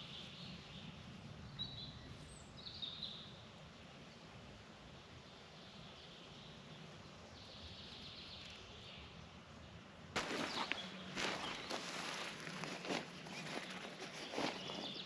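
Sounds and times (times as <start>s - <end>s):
distant birdsong: 5.2s - 15.0s
boots crunching on dry needles: 10.2s - 15.0s.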